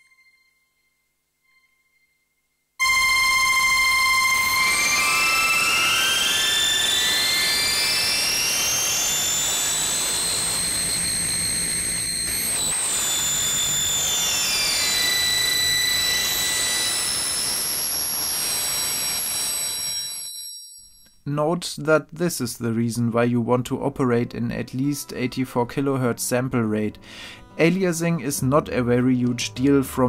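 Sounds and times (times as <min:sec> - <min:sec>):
hissing noise: 0:02.8 - 0:20.3
gliding whistling tones: 0:02.8 - 0:21.1.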